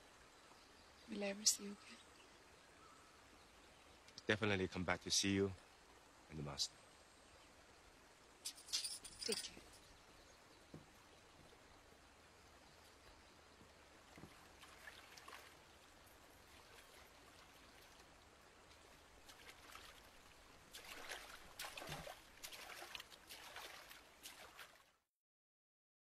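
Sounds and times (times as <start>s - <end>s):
paddle splashing in water: 14.0s - 24.9s.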